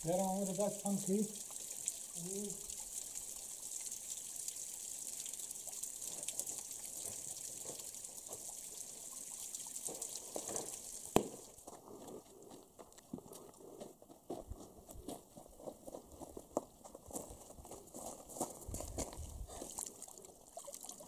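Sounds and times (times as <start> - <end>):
water trickling into pool: 0.0 - 13.7, 15.6 - 21.0
footsteps on stony ground: 9.9 - 19.9.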